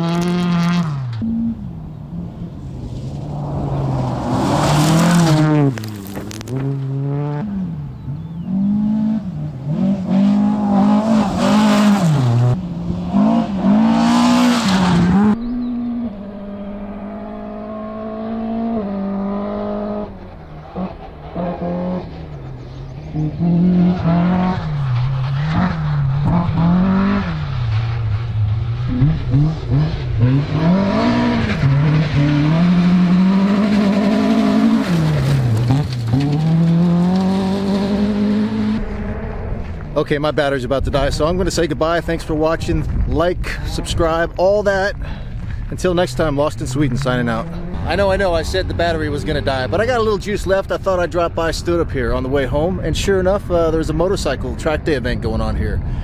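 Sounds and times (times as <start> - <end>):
rally car engines revving: 0.0 - 56.0
tyres flinging gravel: 2.7 - 7.0.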